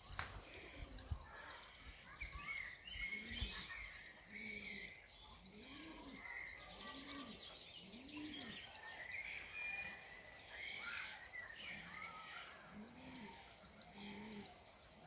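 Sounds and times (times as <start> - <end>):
pigeon cooing: 4.5 - 8.7, 12.7 - 14.7.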